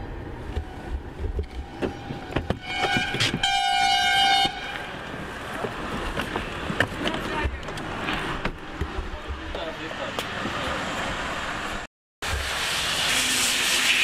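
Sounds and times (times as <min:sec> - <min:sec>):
car horn honk: 0:01.7 - 0:04.9.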